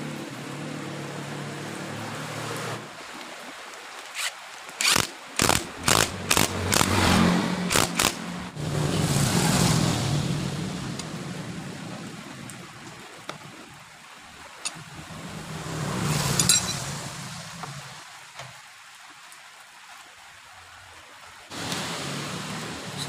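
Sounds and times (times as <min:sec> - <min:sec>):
vehicle engine running: 0:05.4 - 0:12.1.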